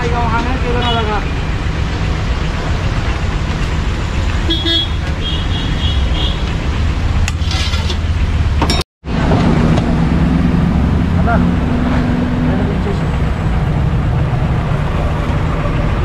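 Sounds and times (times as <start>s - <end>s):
busy street rumble: 0.0s - 16.0s
vehicle horn toots: 4.4s - 6.5s.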